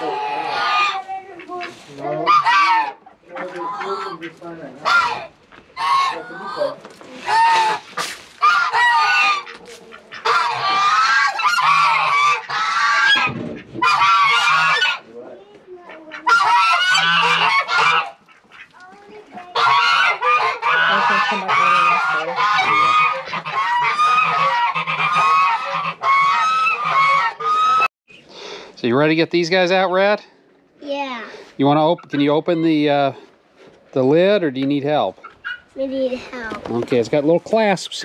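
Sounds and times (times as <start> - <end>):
geese honking: 0.0 - 27.9, 31.6 - 32.9, 35.0 - 35.8.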